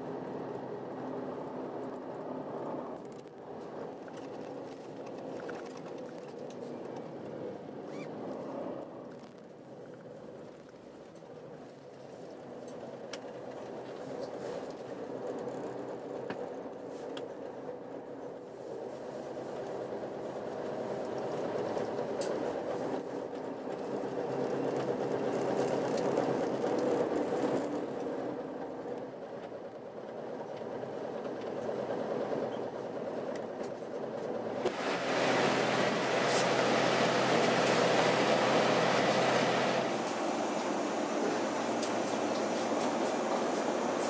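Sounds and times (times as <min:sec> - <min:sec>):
bus engine hum: 0:00.0 - 0:44.0
road noise: 0:00.0 - 0:44.0.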